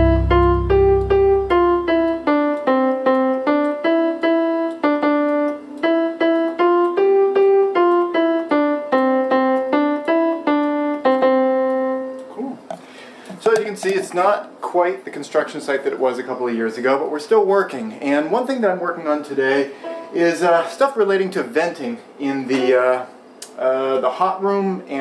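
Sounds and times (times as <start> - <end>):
electronic keyboard piano melody: 0.0 - 12.7.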